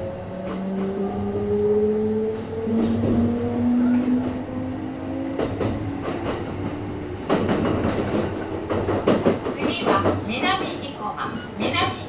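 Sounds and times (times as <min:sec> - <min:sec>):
wheels clacking over rail joints: 0:05.2 - 0:11.4.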